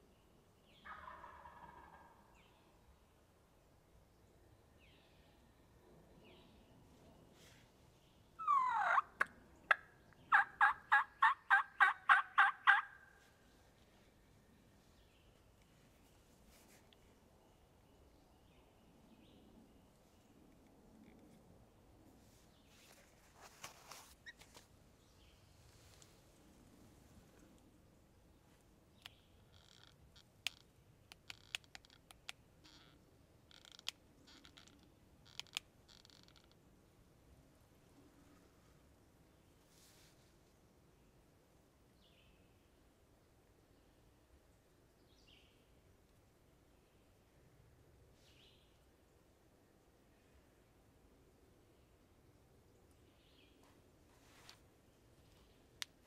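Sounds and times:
turkey yelps: 0:08.4 - 0:13.1
short scratchy rustles: 0:22.7 - 0:24.7
faint sharp clicks: 0:55.3 - 0:56.0.

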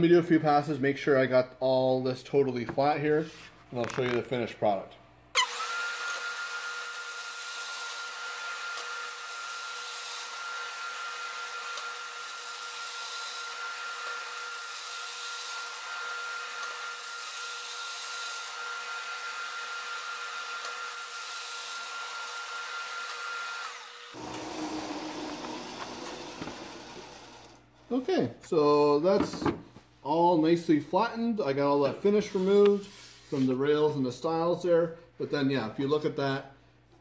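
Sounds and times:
drum sander whining: 0:23.6 - 0:27.6.

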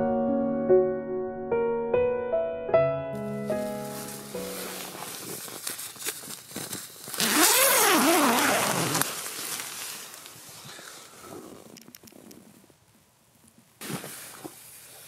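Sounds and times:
tent fabric rustling: 0:03.2 - 0:11.7, 0:13.8 - 0:15.0
tent zipper pulled open: 0:03.9 - 0:09.9, 0:11.2 - 0:12.6, 0:13.8 - 0:14.6.

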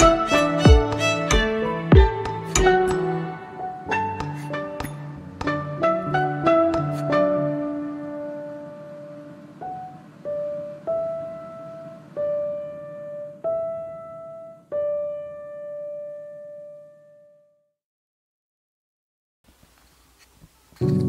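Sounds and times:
piano single notes: 0:00.0 - 0:17.1, 0:20.8 - 0:21.0.

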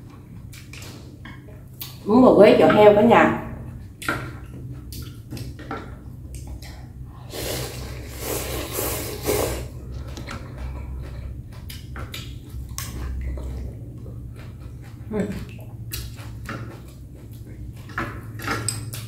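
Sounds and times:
chewing with wet clicks: 0:00.0 - 0:02.0, 0:03.8 - 0:07.0, 0:09.8 - 0:19.0
slurping noodles: 0:07.2 - 0:10.1.

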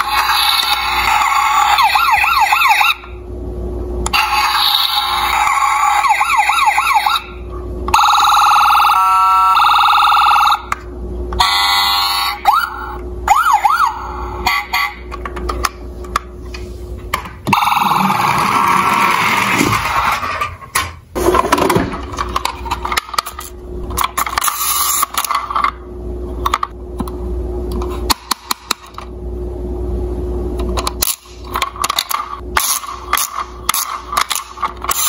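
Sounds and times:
toy warbling siren: 0:00.0 - 0:03.2, 0:04.1 - 0:10.7, 0:11.4 - 0:15.0, 0:17.6 - 0:19.3
horn-like tones: 0:14.4 - 0:15.1
rough noisy sound: 0:16.1 - 0:25.7.

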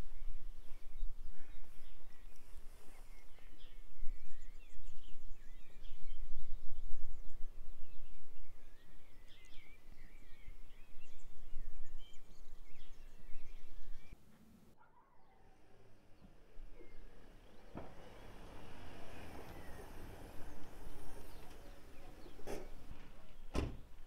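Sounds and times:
songbirds chirping: 0:00.0 - 0:24.0
low uneven rumble: 0:15.5 - 0:24.0.

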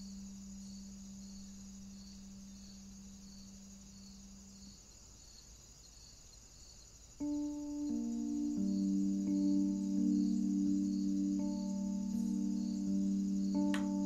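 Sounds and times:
low sustained hum: 0:00.0 - 0:04.7.

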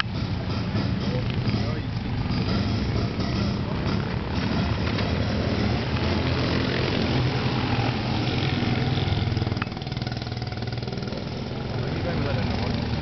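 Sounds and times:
go-kart engines running: 0:00.0 - 0:13.0.

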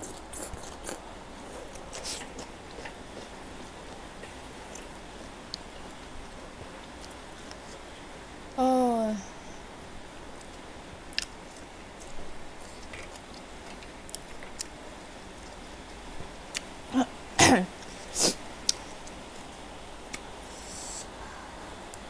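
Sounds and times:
wet chewing: 0:00.0 - 0:04.0.

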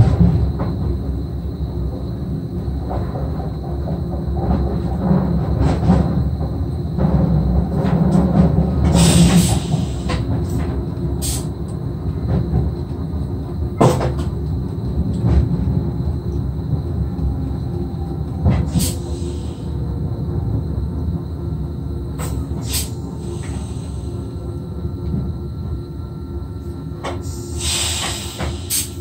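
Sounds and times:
train low rumble: 0:00.0 - 0:29.0
short bursts of hiss: 0:11.2 - 0:11.5, 0:22.2 - 0:24.1, 0:27.2 - 0:29.0.

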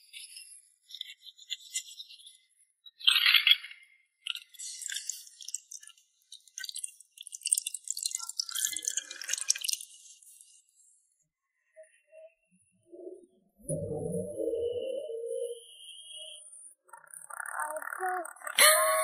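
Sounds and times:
water dripping: 0:04.5 - 0:10.3.

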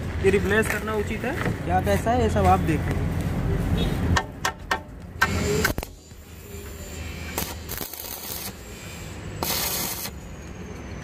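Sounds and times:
electric arc welding: 0:05.2 - 0:10.3.

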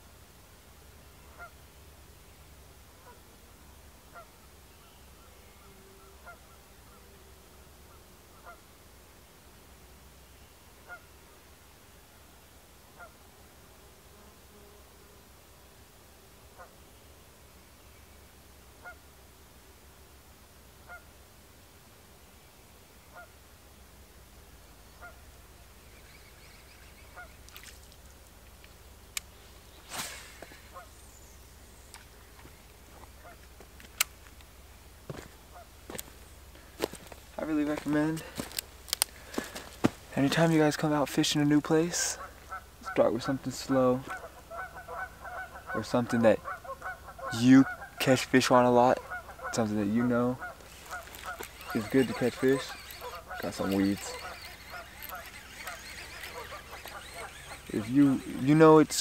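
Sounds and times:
faint goose honks: 0:01.3 - 0:01.6, 0:03.0 - 0:03.3, 0:04.1 - 0:04.4, 0:05.2 - 0:07.3, 0:07.9 - 0:08.7, 0:10.8 - 0:11.2, 0:13.0 - 0:13.2, 0:18.8 - 0:19.0, 0:20.8 - 0:21.1, 0:23.1 - 0:23.3, 0:25.0 - 0:25.3, 0:26.0 - 0:27.5, 0:33.2 - 0:33.5, 0:42.0 - 0:48.2, 0:48.8 - 0:59.0
brief rush of noise: 0:29.8 - 0:30.8.

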